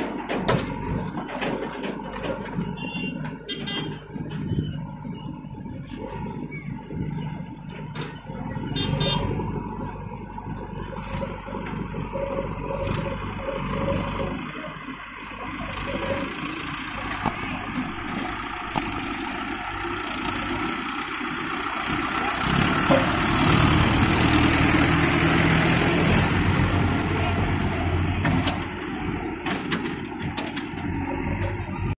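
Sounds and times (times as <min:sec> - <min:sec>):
sharp clicks and knocks: 0:00.0 - 0:04.5, 0:15.6 - 0:19.4, 0:27.6 - 0:31.8
tractor diesel engine under load: 0:00.0 - 0:32.0.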